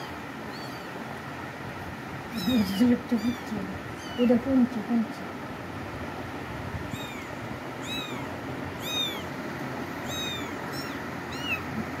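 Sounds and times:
kitten meowing: 0.0s - 1.0s, 2.3s - 4.4s, 6.9s - 9.4s, 10.0s - 12.0s.

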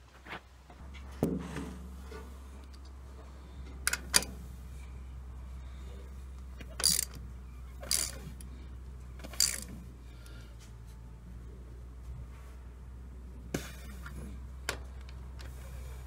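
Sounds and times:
steady low hum: 0.0s - 16.0s
sharp metal clicks: 3.8s - 4.4s, 6.6s - 7.2s, 7.8s - 8.5s, 9.2s - 9.8s
ratchet wrench strokes: 6.8s - 7.2s, 7.8s - 8.5s, 9.2s - 9.7s.

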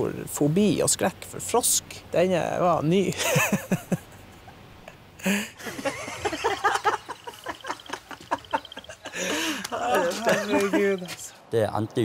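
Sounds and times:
high ticking trill: 5.9s - 11.3s.

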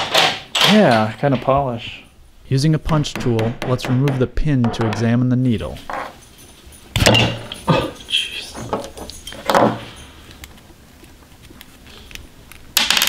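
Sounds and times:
light metallic tinkling and scraping: 5.5s - 10.8s
metal parts knocking on workbench: 6.9s - 8.0s, 8.6s - 10.0s.

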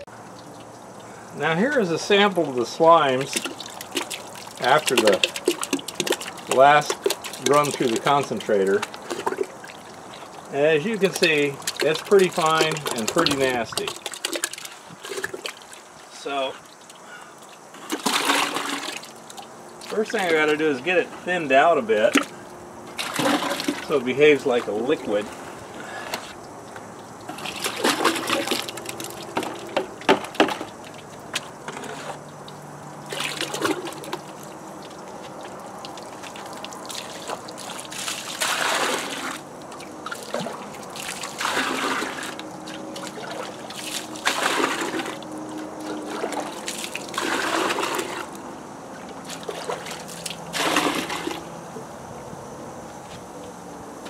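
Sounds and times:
slurry pouring into buckets: 1.4s - 16.5s, 17.8s - 19.2s, 23.0s - 26.3s, 27.3s - 30.8s, 33.1s - 34.4s, 36.0s - 39.4s, 40.1s - 48.4s, 49.3s - 51.4s.

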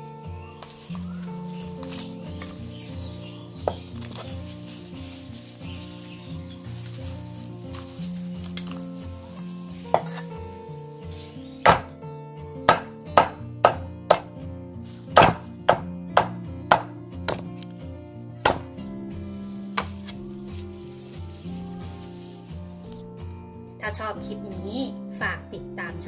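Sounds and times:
background music: 0.0s - 26.0s
cleaver chopping on wooden board: 9.9s - 10.2s, 11.6s - 12.0s, 12.7s - 14.3s, 15.2s - 17.4s, 18.4s - 18.7s.

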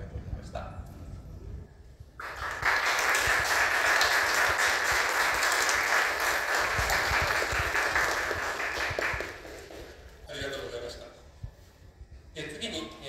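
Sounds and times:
audience applauding: 2.2s - 10.2s.

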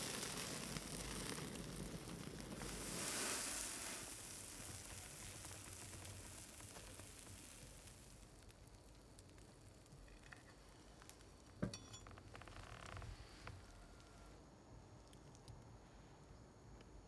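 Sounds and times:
steak sizzling: 0.0s - 11.6s
sharp metallic clink: 11.6s - 12.1s.

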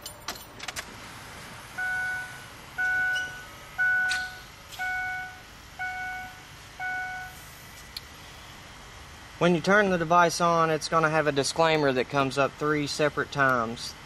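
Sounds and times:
keys clicking in ignition: 0.0s - 0.9s, 4.0s - 4.9s
dashboard warning chime: 1.7s - 7.4s.

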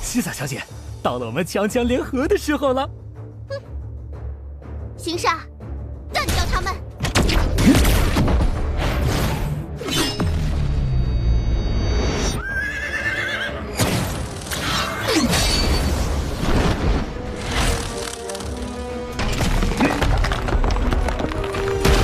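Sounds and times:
dramatic music: 0.0s - 22.0s.

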